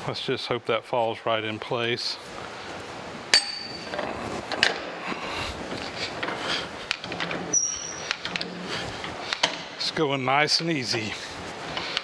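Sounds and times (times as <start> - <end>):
metal clinks and knocks: 3.3 - 4.9
sharp ringing metal clink: 3.4 - 3.9.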